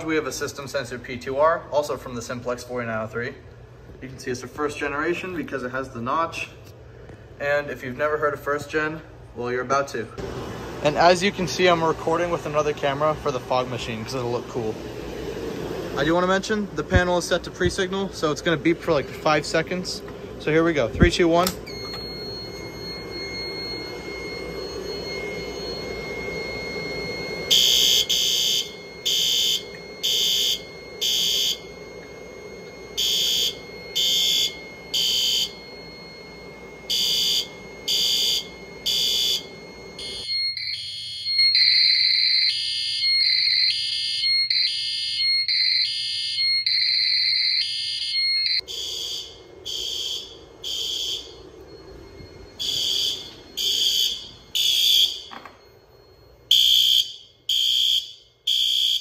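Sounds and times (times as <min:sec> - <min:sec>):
raspy fire alarm horn blasts: 0:10.8 - 0:59.0
tinny alarm through phone speaker: 0:16.0 - 0:59.0.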